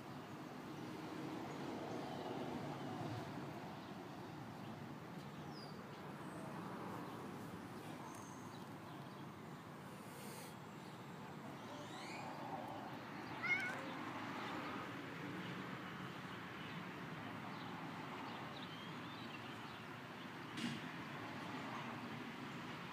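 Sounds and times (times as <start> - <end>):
faint background noise: 0.0 - 22.9
cat meowing: 13.2 - 14.0.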